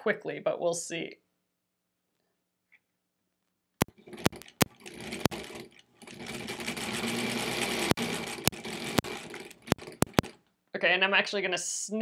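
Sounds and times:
sewing machine clicks: 3.8 - 10.4
sewing machine stitching: 3.8 - 10.4.

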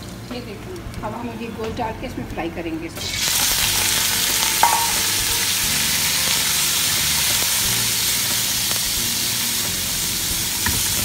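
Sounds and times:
chicken sizzling in hot oil: 3.0 - 11.0
metallic clink: 4.4 - 5.2.

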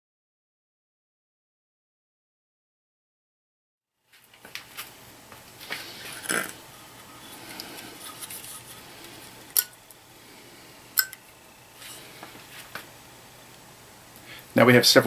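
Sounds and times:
light scraping: 5.6 - 9.7, 11.7 - 12.9.

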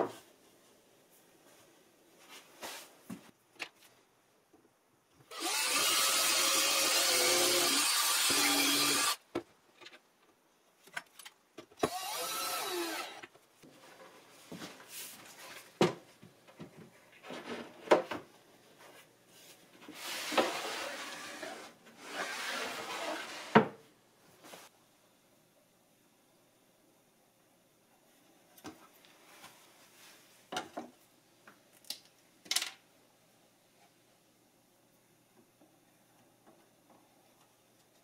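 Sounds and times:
board sliding and rubbing: 2.3 - 2.9, 19.4 - 23.8
cordless drill driving screw: 5.3 - 9.2, 11.8 - 13.2.

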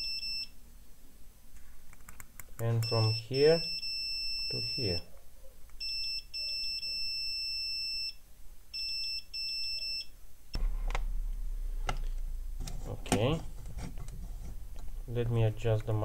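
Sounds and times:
multimeter continuity beep: 0.0 - 0.5, 2.8 - 5.1, 5.8 - 10.1
low hum: 10.5 - 16.0.

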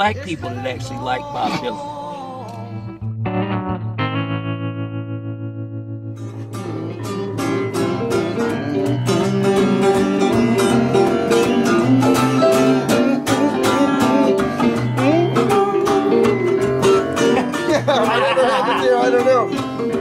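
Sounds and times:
bass line: 0.0 - 20.0
blues electric guitar: 0.0 - 20.0
steady beat: 6.5 - 20.0.

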